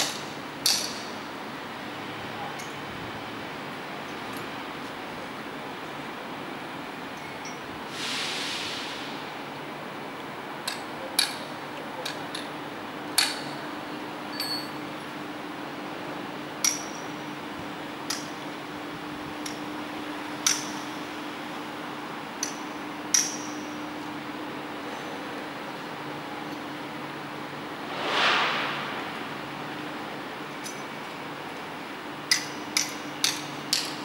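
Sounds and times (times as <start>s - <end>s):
steady low hum: 27.2s - 31.2s.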